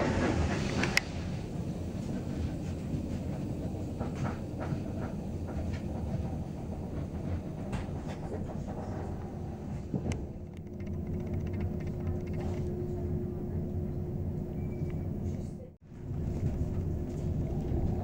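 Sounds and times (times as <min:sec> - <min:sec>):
train wheels rumbling on track: 0:00.0 - 0:18.0.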